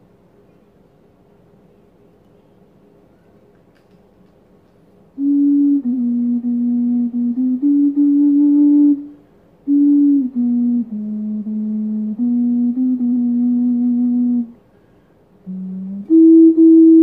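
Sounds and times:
ocarina playing slow melody: 0:05.2 - 0:14.6, 0:15.5 - 0:17.0.

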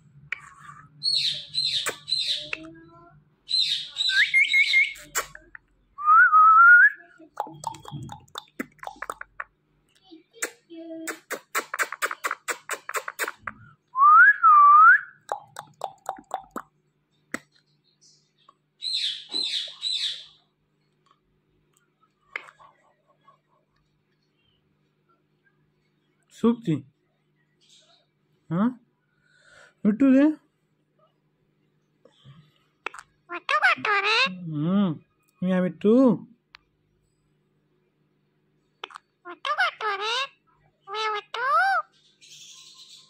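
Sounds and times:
parakeet chirping: 0:00.9 - 0:02.6, 0:03.5 - 0:05.5, 0:07.4 - 0:09.4, 0:18.4 - 0:20.4, 0:33.3 - 0:34.4, 0:38.8 - 0:43.0.

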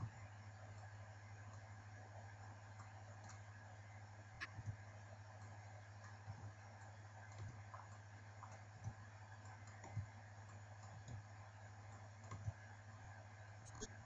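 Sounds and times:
low steady hum: 0:00.0 - 0:14.0
faint computer mouse clicks: 0:12.2 - 0:12.6.

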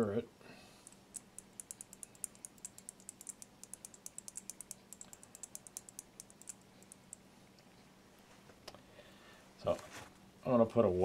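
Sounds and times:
stick clicking in glass beaker: 0:00.8 - 0:07.2.

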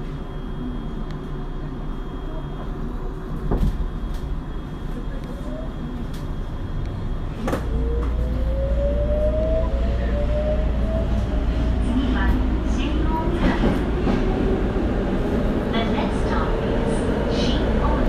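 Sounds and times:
low rumble of train: 0:00.0 - 0:18.0.

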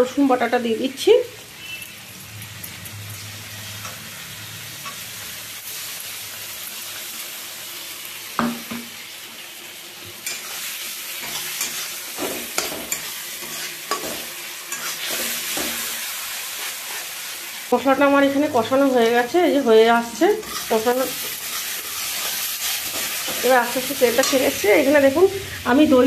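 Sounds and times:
masala sizzling in a pan: 0:00.0 - 0:26.0
metal spatula scraping a pan: 0:10.2 - 0:17.2, 0:20.2 - 0:25.0.

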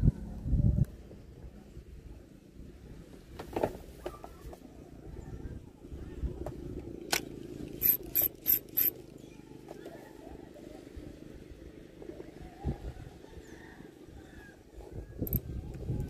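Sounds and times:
fishing reel gears whirring: 0:07.8 - 0:08.9.

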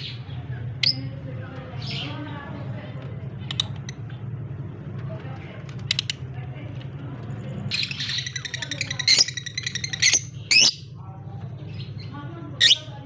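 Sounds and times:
lovebirds chattering: 0:00.0 - 0:13.0.

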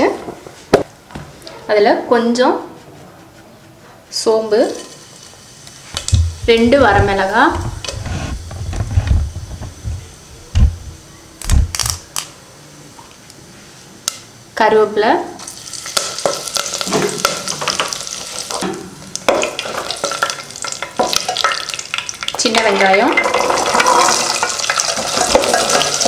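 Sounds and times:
spices frying: 0:04.1 - 0:08.5, 0:15.4 - 0:26.0
oil sizzling loudly: 0:04.6 - 0:08.6, 0:15.4 - 0:26.0
low knocks: 0:06.0 - 0:07.8.

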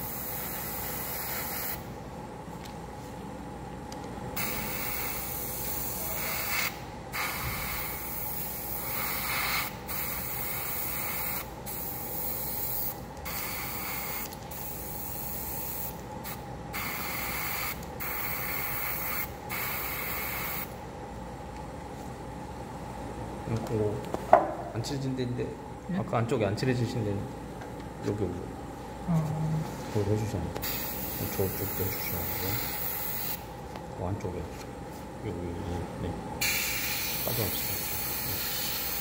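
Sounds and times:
airbrush hissing: 0:00.0 - 0:01.8, 0:04.4 - 0:20.7, 0:30.6 - 0:33.4, 0:36.4 - 0:39.0.

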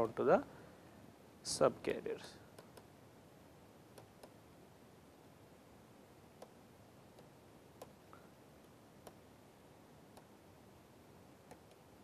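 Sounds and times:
stylus tapping on tablet screen: 0:03.9 - 0:04.4, 0:06.4 - 0:08.0, 0:09.0 - 0:09.2.

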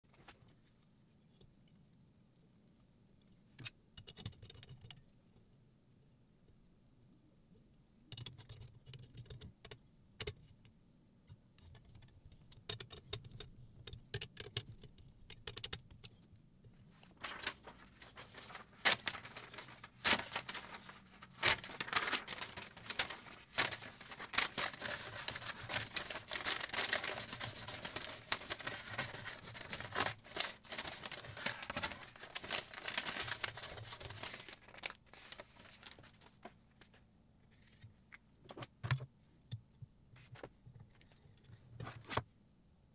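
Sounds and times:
paper crinkling against knife: 0:17.2 - 0:36.5.

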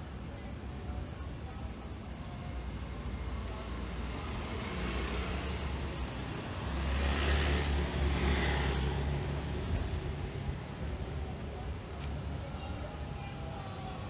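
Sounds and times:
low traffic rumble: 0:00.0 - 0:14.0
vehicle driving past: 0:06.6 - 0:09.6.

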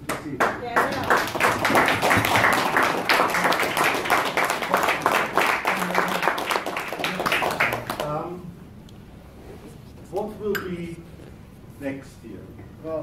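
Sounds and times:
people clapping: 0:00.0 - 0:08.3.

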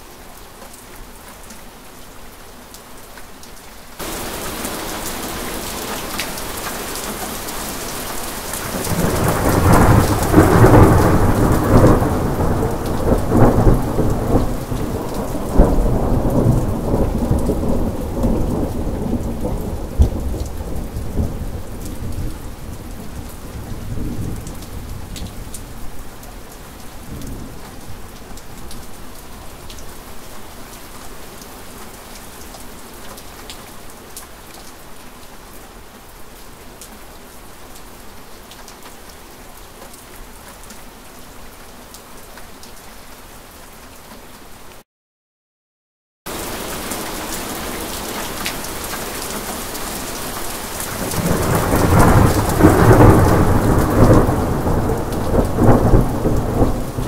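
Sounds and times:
heavy rain: 0:00.0 - 0:44.8, 0:46.3 - 0:57.0
rolling thunder: 0:51.0 - 0:57.0.

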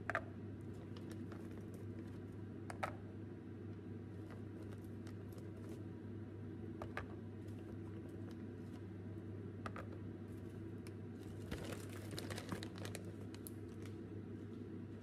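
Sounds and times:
steady low hum: 0:00.0 - 0:15.0
plastic bag crinkling: 0:11.2 - 0:14.0.

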